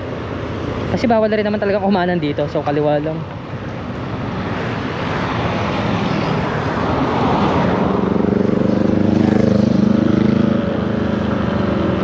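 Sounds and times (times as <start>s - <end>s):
wind and road noise: 0.0s - 12.0s
scooter engine accelerating: 7.8s - 12.0s.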